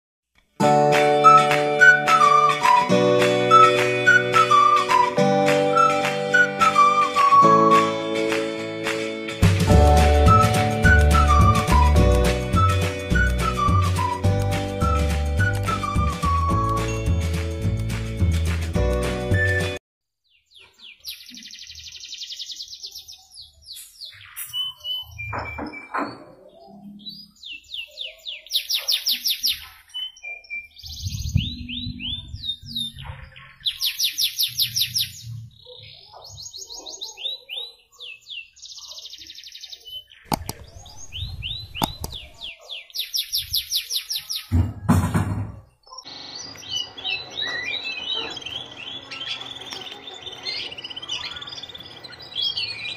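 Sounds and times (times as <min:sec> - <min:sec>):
canary singing trills: 0:20.2 - 0:44.5, 0:45.8 - 0:52.9.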